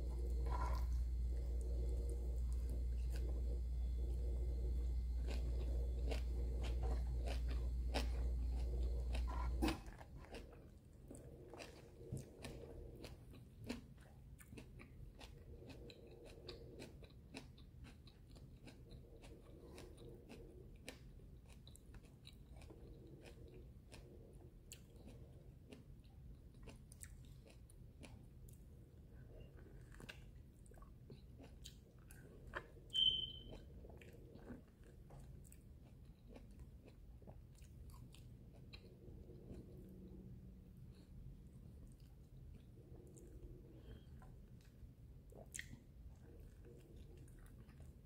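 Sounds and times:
loud low hum: 0.0s - 9.9s
chewing crispy fried fish: 0.0s - 48.0s.

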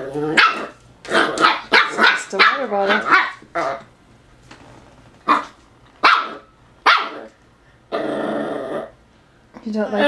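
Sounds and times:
puppy barking: 0.3s - 3.8s, 5.2s - 7.4s.

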